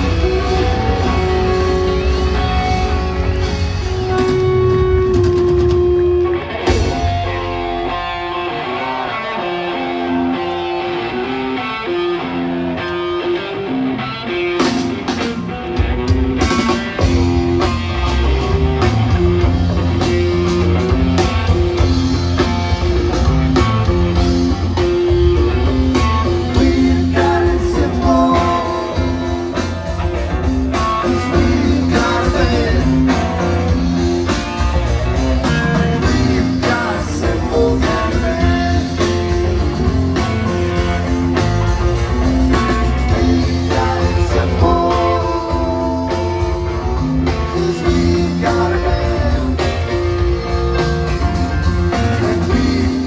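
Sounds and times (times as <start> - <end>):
drums: 0.0 - 53.0
electric guitar lines: 0.0 - 53.0
steady bass: 0.0 - 53.0.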